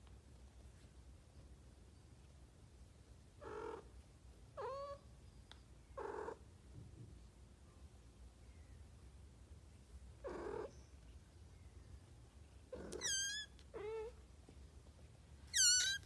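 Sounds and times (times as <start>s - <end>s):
cat calling and trilling: 4.6s - 5.0s, 12.7s - 14.2s, 15.5s - 16.0s.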